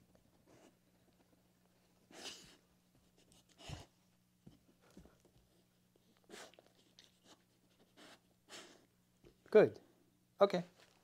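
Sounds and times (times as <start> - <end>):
dog sniffing: 0.3 - 0.9, 2.0 - 4.0, 4.8 - 8.9.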